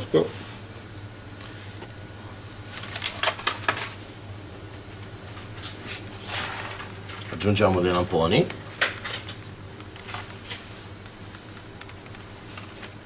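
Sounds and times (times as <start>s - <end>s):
steady low hum: 0.0s - 13.0s
soft handling clicks and rustles: 7.1s - 13.0s.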